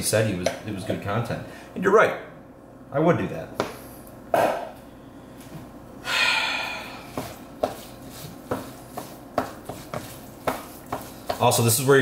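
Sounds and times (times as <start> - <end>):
spatula stirring rice mash: 7.6 - 11.9
spatula knocking plastic bowl: 8.5 - 11.6.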